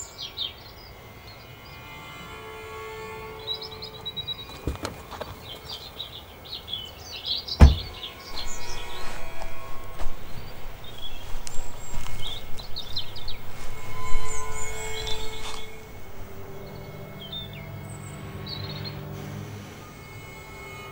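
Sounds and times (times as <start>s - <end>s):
birds chirping: 0.0s - 20.9s
footsteps crunching on forest floor: 4.5s - 6.0s, 7.6s - 17.6s
loud thump: 7.6s - 8.5s.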